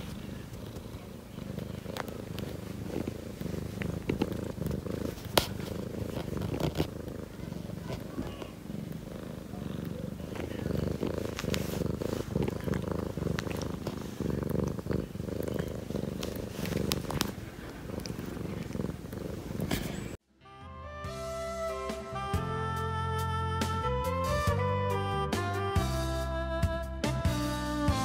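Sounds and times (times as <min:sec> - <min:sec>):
cat purring: 0:00.0 - 0:20.2.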